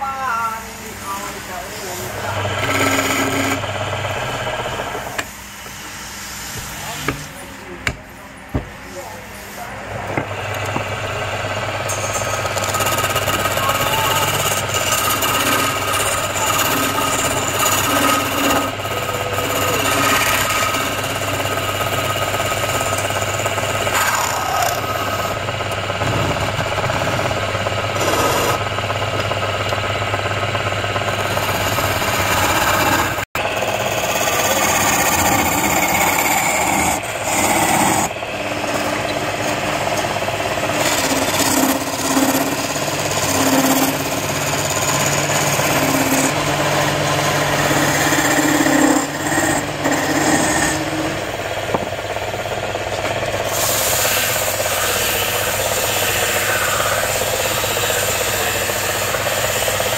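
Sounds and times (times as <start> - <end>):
wood lathe humming: 0.0 - 59.9
chisel rasping on spinning wood: 1.0 - 5.3, 8.6 - 59.9.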